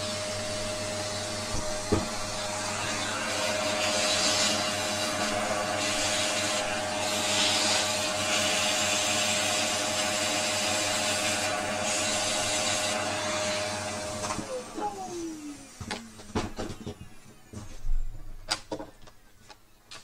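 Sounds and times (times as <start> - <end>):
vacuum cleaner whine: 0.0 - 18.3.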